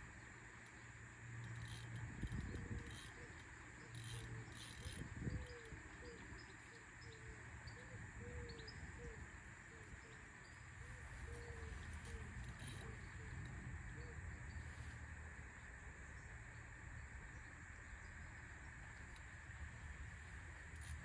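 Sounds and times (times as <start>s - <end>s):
fishing reel squeaking: 1.4s - 6.8s, 11.0s - 14.0s.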